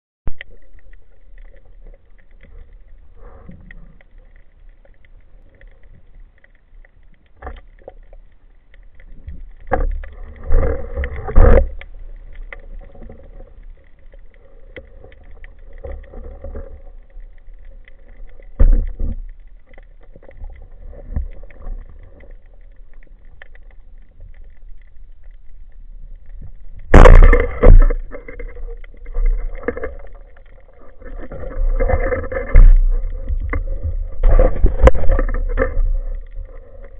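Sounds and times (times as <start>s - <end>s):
knocks and thuds from diver: 26.9s - 28.0s.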